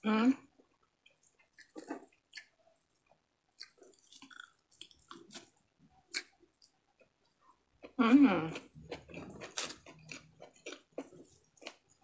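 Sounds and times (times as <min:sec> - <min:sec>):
wet chewing mouth clicks: 0:01.2 - 0:02.6, 0:03.6 - 0:07.1.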